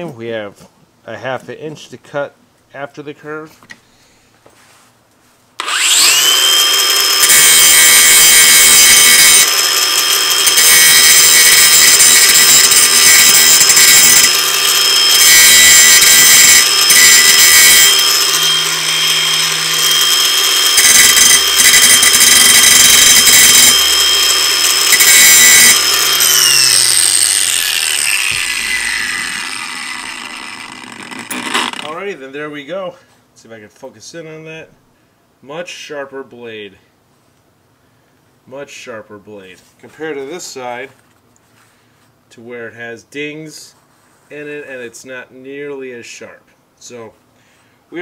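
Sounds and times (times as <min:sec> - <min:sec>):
grinding rasp on metal: 0:05.6 - 0:31.9
angle grinder motor whine: 0:05.6 - 0:32.2.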